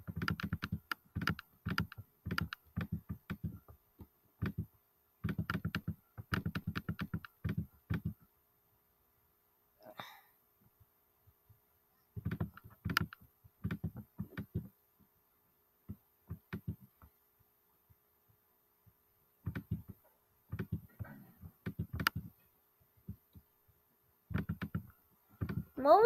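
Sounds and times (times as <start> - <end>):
light taps and dull knocks: 10.6 - 15.2, 15.8 - 25.8.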